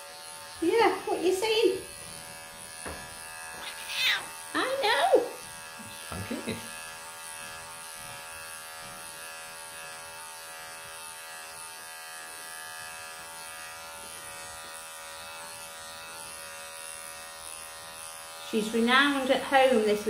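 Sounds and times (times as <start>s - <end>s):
electric clippers buzzing: 0.0s - 20.0s.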